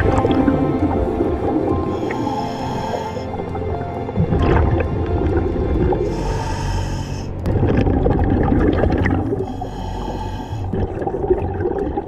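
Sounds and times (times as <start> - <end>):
hissing exhaled bubbles: 0.0 - 12.0
low rumble of water: 0.0 - 12.0
diver breathing through regulator: 1.8 - 3.6, 5.9 - 7.5, 9.2 - 11.1.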